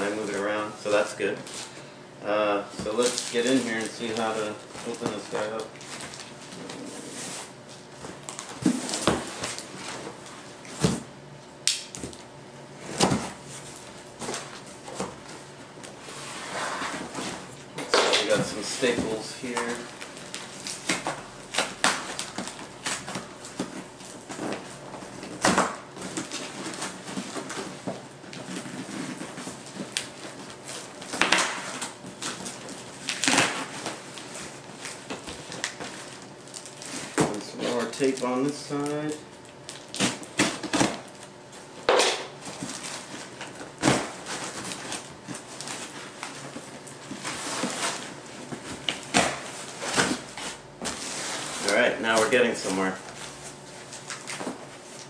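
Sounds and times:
packing tape ripping: 0:25.2 - 0:41.3.

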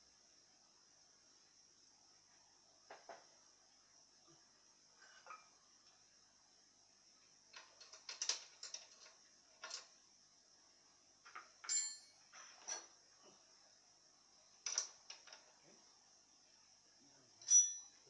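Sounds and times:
metal tools and parts clinking: 0:11.3 - 0:13.0, 0:17.4 - 0:18.0.

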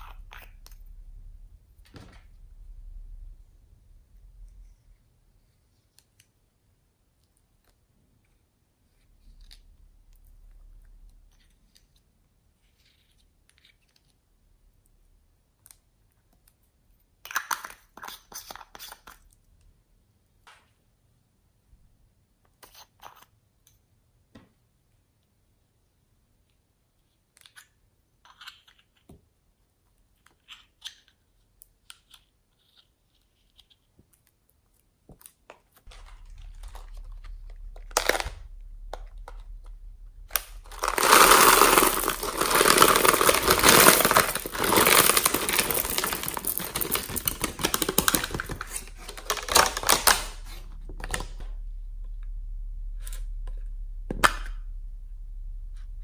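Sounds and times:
plastic beads clattering out: 0:35.9 - 0:38.4, 0:40.3 - 0:51.4.

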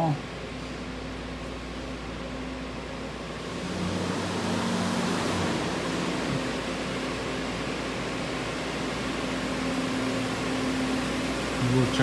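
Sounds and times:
low droning tones: 0:00.0 - 0:12.0
mechanical hum and air noise: 0:00.0 - 0:12.0.

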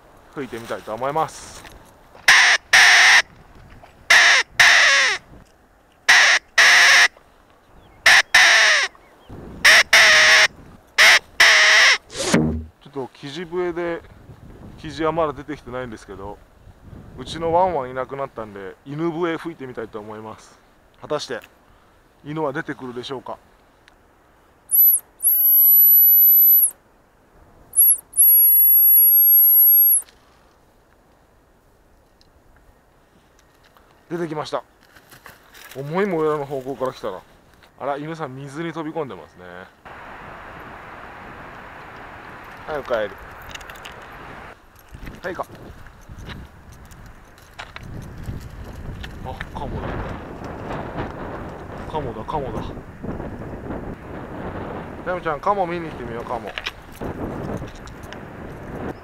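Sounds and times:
pheasant call whistle: 0:24.7 - 0:26.8, 0:27.8 - 0:30.1.

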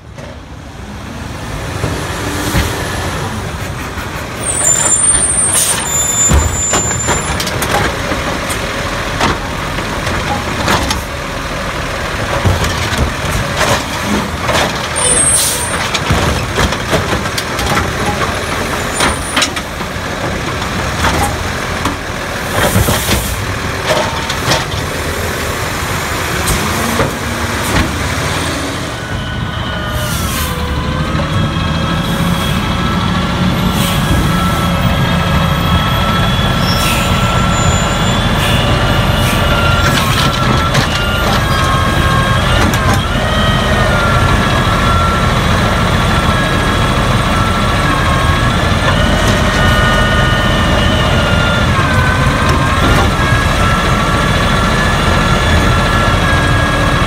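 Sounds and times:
garbage truck diesel engine: 0:00.0 - 0:57.0
high brake squeals: 0:04.4 - 0:07.5, 0:15.0 - 0:15.9, 0:28.4 - 0:52.8.

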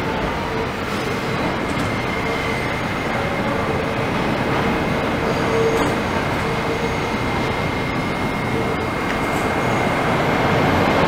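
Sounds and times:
faint high wheel squeal: 0:00.0 - 0:10.6
wheels rumbling on rail: 0:00.0 - 0:11.0.

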